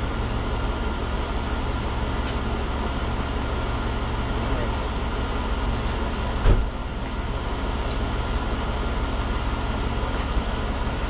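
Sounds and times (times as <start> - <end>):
truck engine idling: 0.0 - 11.0
short thump: 6.4 - 6.8.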